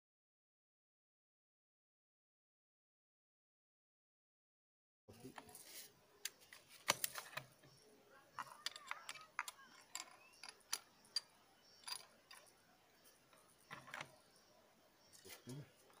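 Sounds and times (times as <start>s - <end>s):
rifle handling clicks and ticks: 6.2s - 7.6s, 8.4s - 12.5s.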